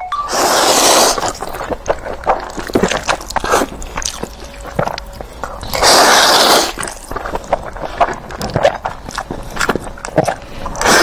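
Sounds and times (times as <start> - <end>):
loud noodle slurp: 0.3 - 3.7, 5.7 - 8.8, 10.8 - 11.0
wet chewing and mouth smacks: 0.3 - 11.0.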